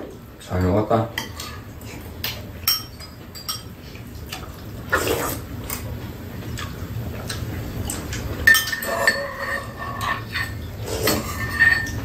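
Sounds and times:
spoons clinking on ceramic bowls: 8.5s - 12.0s.

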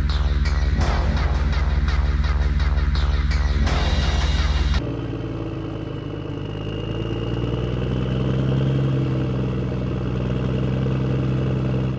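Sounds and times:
vehicle engine idling: 0.0s - 11.9s.

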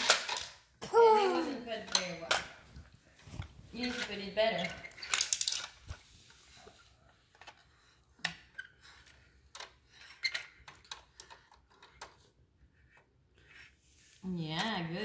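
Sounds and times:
plastic toy parts clicking: 3.9s - 5.9s.

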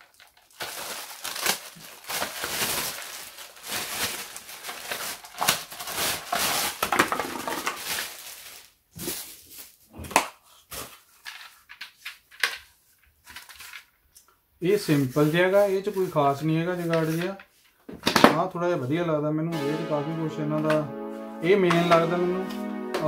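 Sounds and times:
plastic wrapping crinkling: 0.0s - 9.8s.

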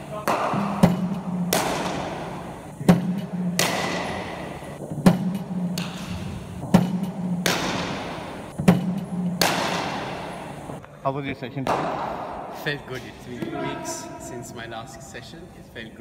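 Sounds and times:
cricket bat striking balls: 0.0s - 10.8s, 11.6s - 12.4s.

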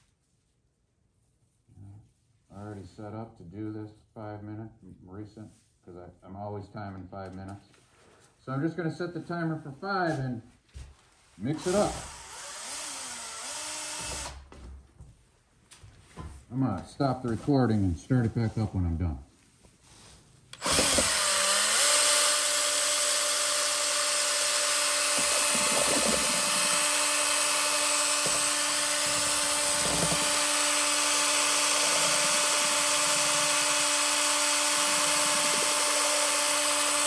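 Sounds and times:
electric drill whining: 11.6s - 14.5s, 20.6s - 37.0s.

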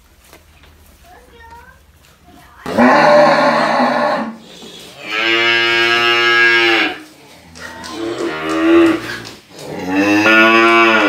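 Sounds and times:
cattle mooing: 2.7s - 4.4s, 5.0s - 7.0s, 7.8s - 11.0s.

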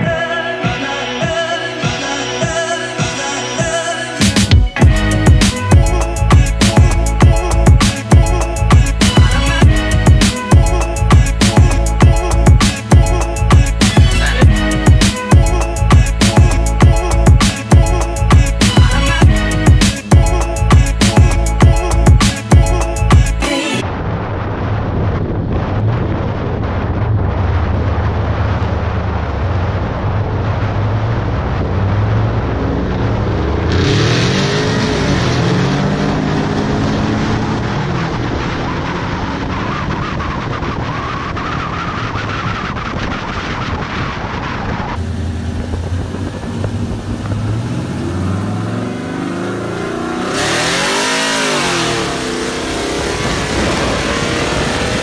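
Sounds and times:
wind and road noise: 4.4s - 55.0s
car engines revving at speed: 26.9s - 55.0s.

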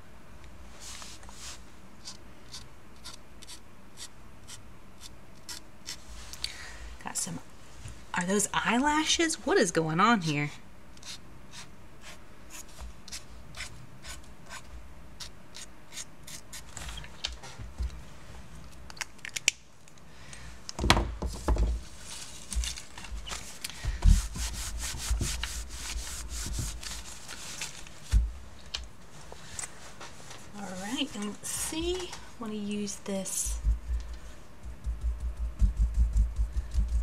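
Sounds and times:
handling thumps: 20.8s - 21.8s
hand rubbing across paper: 23.1s - 28.2s.

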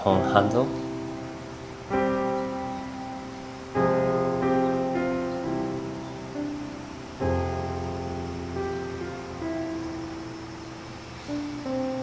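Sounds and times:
slow piano chords: 0.0s - 12.0s.

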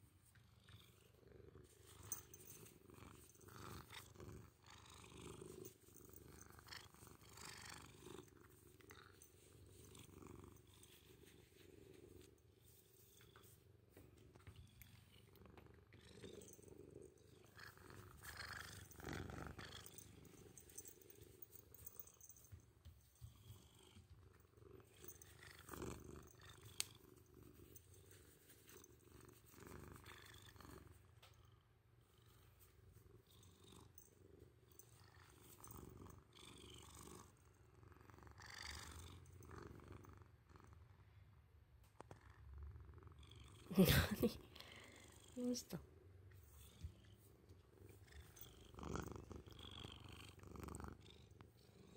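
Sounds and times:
kitten purring: 0.0s - 12.3s, 14.3s - 22.4s, 23.2s - 31.3s, 41.8s - 51.9s.

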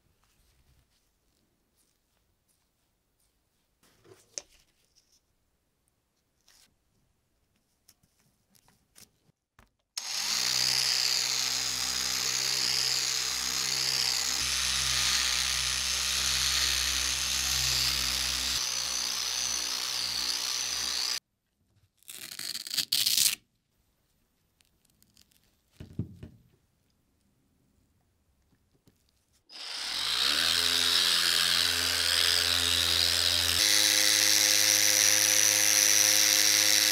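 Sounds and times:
rotary polisher running: 10.0s - 21.2s, 29.5s - 36.9s.

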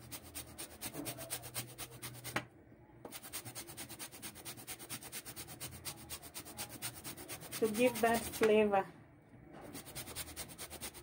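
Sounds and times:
peel rasping on metal grater: 3.2s - 8.4s.

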